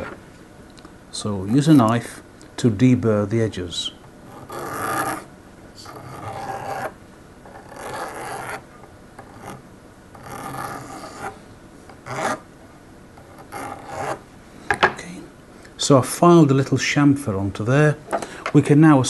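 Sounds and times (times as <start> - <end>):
file scraping metal wire: 4.3 - 8.6, 9.2 - 11.4, 12.0 - 12.4, 13.2 - 14.2.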